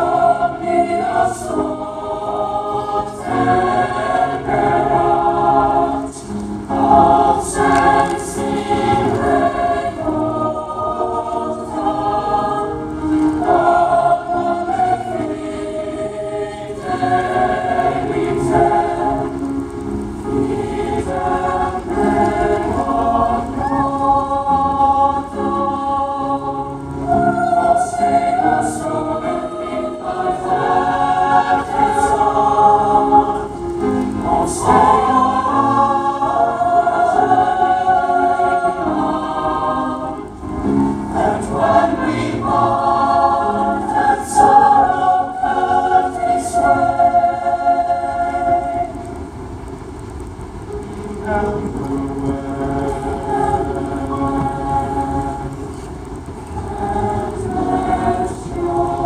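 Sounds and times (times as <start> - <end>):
choir singing: 0.0 - 49.7, 50.6 - 59.0.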